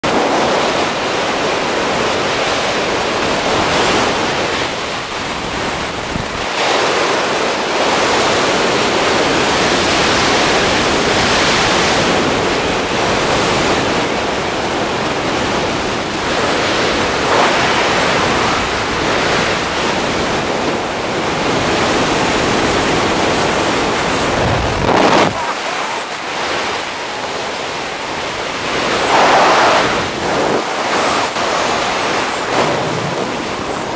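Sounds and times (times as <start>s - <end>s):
wind buffeting microphone: 16.7s - 25.5s.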